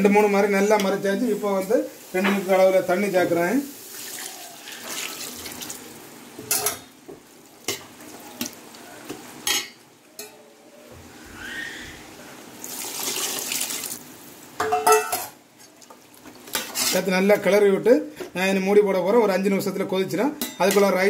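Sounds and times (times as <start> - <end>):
water pouring into a pot: 3.7 - 6.0, 12.6 - 14.1.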